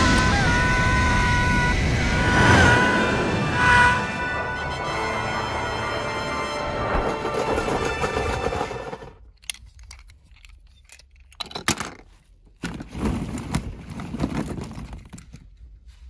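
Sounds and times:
plastic balls clattering together: 9.2s - 15.6s.

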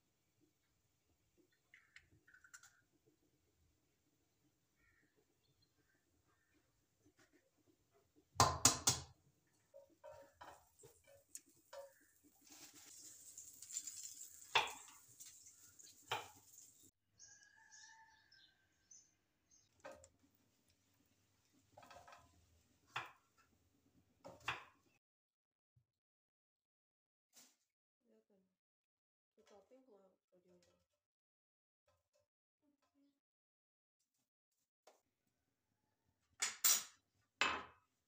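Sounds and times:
kitchenware clattering: 9.7s - 16.8s.

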